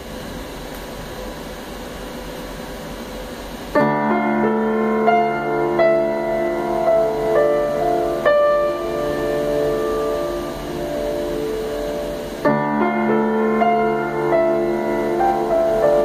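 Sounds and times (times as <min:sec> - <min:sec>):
faint hiss: 0:00.0 - 0:16.0
piano chords ringing: 0:03.8 - 0:16.0.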